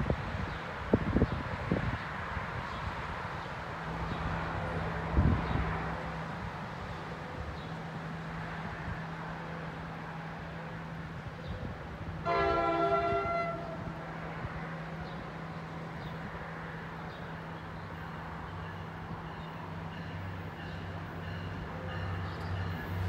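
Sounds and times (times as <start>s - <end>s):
train air horn chord: 12.2s - 14.0s.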